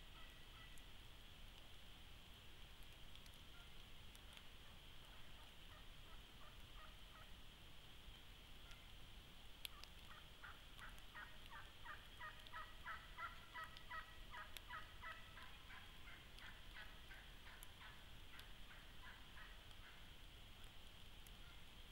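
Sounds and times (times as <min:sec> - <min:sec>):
turkey calling: 0:00.1 - 0:00.9, 0:03.2 - 0:03.8, 0:04.6 - 0:07.4, 0:09.6 - 0:20.1, 0:21.3 - 0:21.7.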